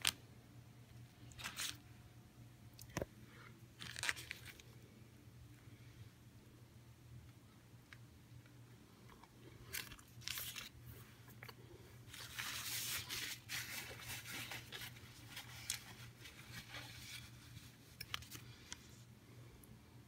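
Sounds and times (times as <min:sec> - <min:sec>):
low steady hum: 0:00.0 - 0:20.0
paper wrapper crinkling: 0:01.2 - 0:01.8, 0:03.8 - 0:04.8, 0:09.7 - 0:18.9.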